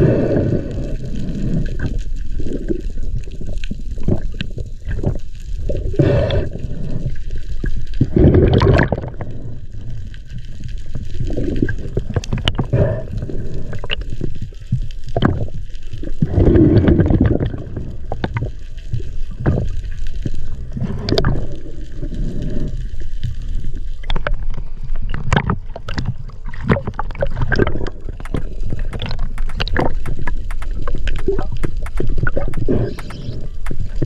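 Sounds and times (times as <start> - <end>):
water sloshing and gurgling: 0.0 - 34.0
sharp clicks and knocks: 27.6 - 34.0.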